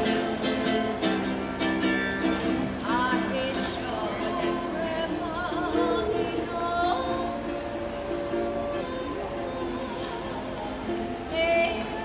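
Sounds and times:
ukulele strummed: 0.0s - 12.0s
woman singing: 2.7s - 10.3s, 11.3s - 12.0s.

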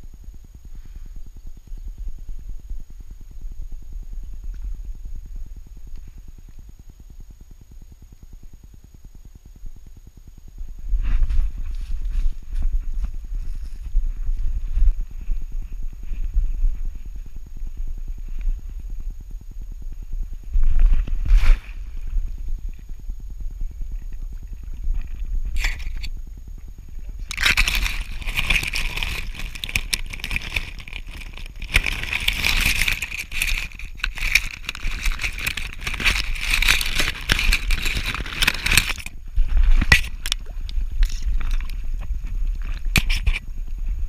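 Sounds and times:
low rumble of camera jostling: 10.4s - 44.0s
branches scraping camera housing: 25.6s - 26.1s, 27.3s - 40.4s, 42.9s - 43.4s.

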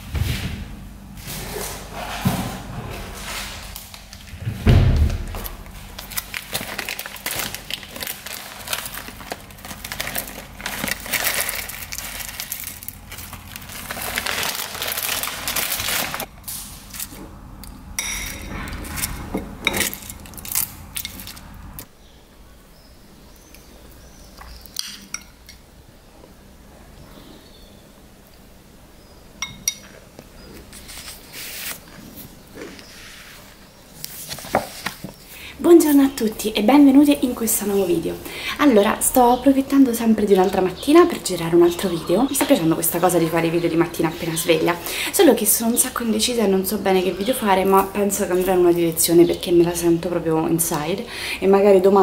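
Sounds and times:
rustling of food toppings: 5.3s - 17.4s
spoon clinking on ceramic bowl: 29.4s - 29.9s.

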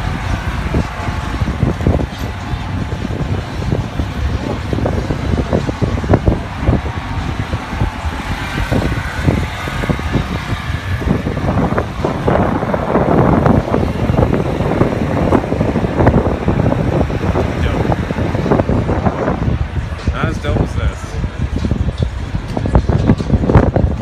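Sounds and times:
car engines running: 0.0s - 24.0s
wind buffeting microphone: 0.0s - 24.0s.

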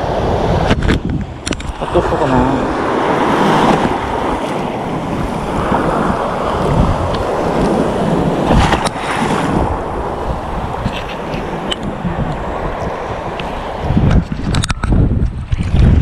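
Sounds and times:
surf rushing: 0.0s - 14.8s
wind buffeting microphone: 0.0s - 16.0s
camera rubbing on clothing: 10.8s - 12.4s.

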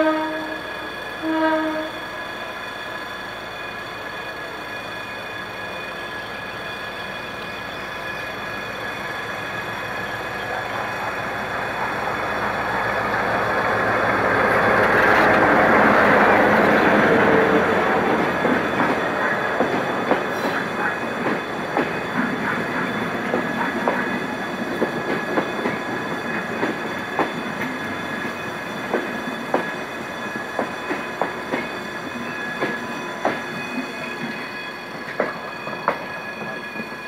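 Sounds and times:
locomotive horn blasts: 0.0s - 0.6s, 1.2s - 2.0s
train engine and wheel noise: 0.0s - 37.0s.

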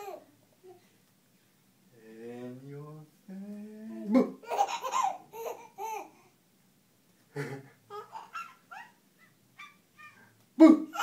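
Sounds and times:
baby laughing: 0.0s - 0.3s, 4.2s - 6.2s, 7.4s - 11.0s.

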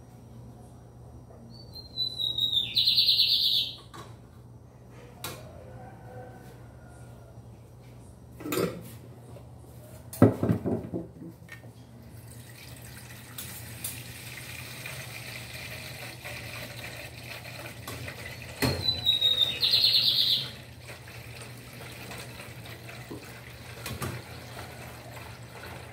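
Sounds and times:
dishes clattering in sink: 8.4s - 8.9s, 22.9s - 25.1s
tap running: 12.9s - 25.9s.

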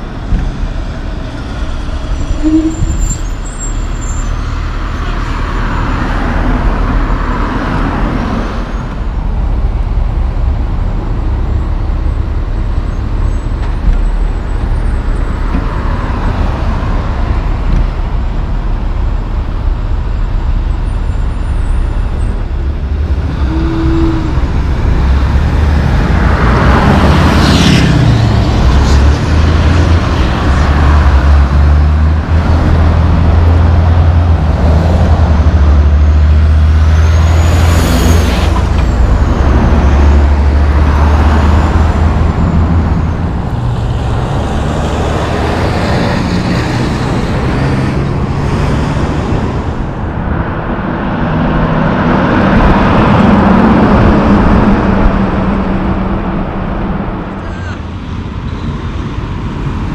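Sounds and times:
diesel truck engine drone: 0.0s - 59.9s
road traffic: 0.0s - 59.9s
high squeals: 1.6s - 5.0s.

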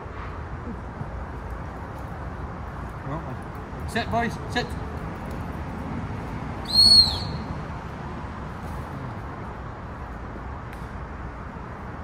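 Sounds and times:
short loud whistle blast: 6.7s - 7.4s.

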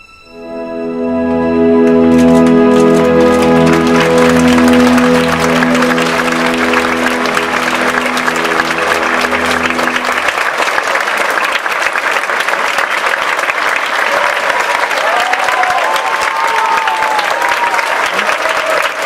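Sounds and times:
music final held chord: 0.1s - 10.8s
audience applauding: 1.3s - 19.0s.

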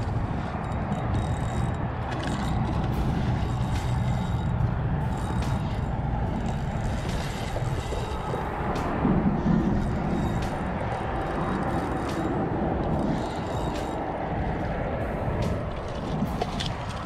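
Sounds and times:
fishing reel clicks: 0.0s - 8.2s, 9.8s - 14.0s
wind rumble on microphone: 0.0s - 17.0s.

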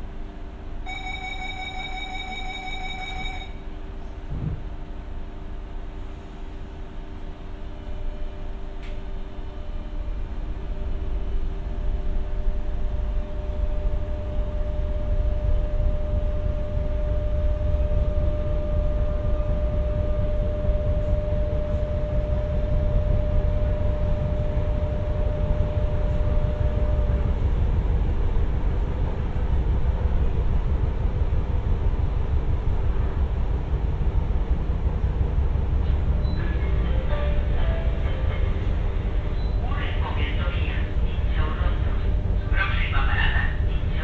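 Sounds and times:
train wheels rumbling on rail: 0.0s - 44.0s.

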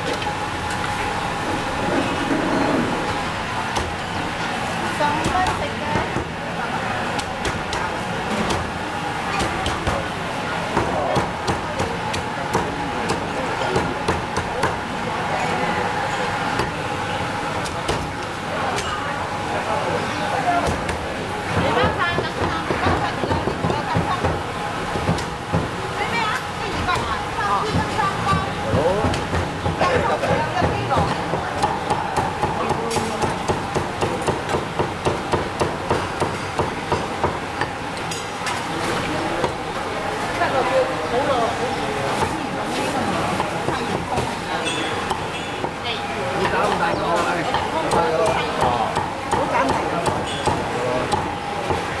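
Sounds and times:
cleaver chopping pork on block: 7.2s - 10.1s, 10.7s - 14.8s, 27.7s - 37.7s, 46.4s - 51.9s.

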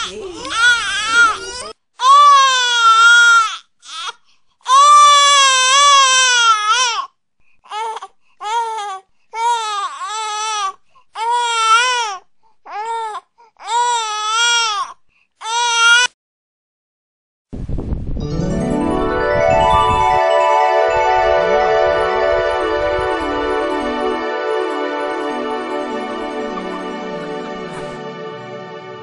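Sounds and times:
newborn baby crying: 0.0s - 7.1s, 7.7s - 16.1s.

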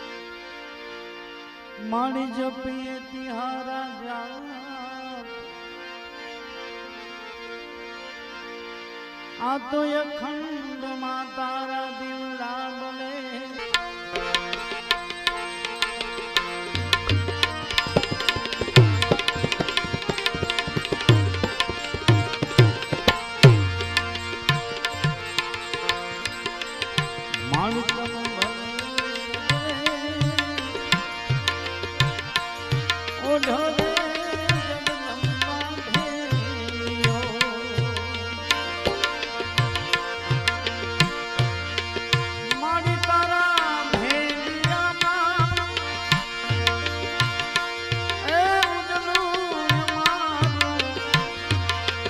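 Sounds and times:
harmonium chords: 0.0s - 52.0s
man singing: 1.8s - 5.4s, 9.4s - 14.7s, 16.6s - 39.9s, 42.0s - 52.0s
tabla beat: 13.7s - 52.0s.

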